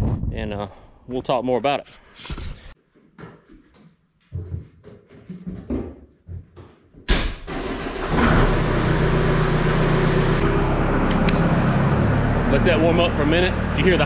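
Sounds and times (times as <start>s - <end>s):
diesel engine starting and idling: 7.4s - 14.0s.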